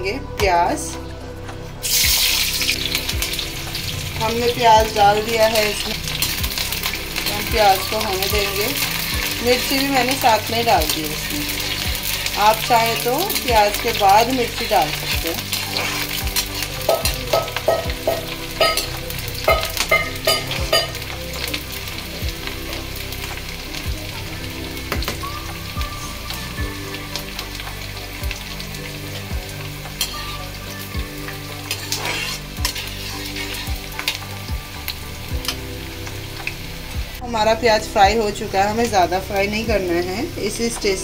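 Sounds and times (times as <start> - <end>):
onions sizzling in hot oil: 1.8 - 41.0
metal spatula scraping pan: 31.7 - 34.1.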